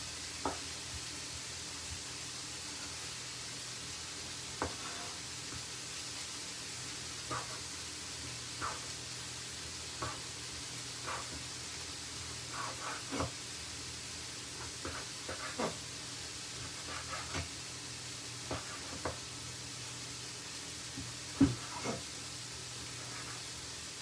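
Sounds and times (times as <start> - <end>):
steady hiss: 0.0 - 24.0
knife knocking on wooden board: 21.4 - 21.7.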